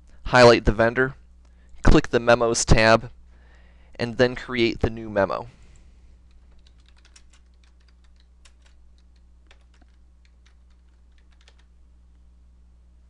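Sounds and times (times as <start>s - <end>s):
low steady hum: 0.0s - 13.0s
keyboard typing: 6.2s - 11.8s.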